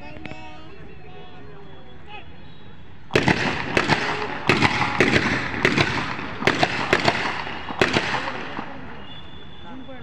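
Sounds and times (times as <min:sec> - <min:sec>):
rifles fired in rapid ripple: 0:03.1 - 0:09.0.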